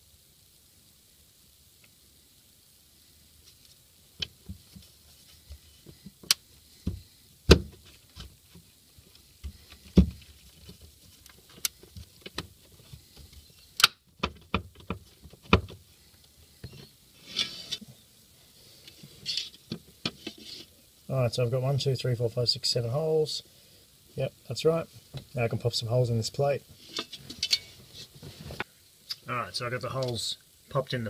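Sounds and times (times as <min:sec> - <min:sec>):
metal plate scraping: 0:16.7 - 0:17.9, 0:19.0 - 0:20.7, 0:26.8 - 0:28.6.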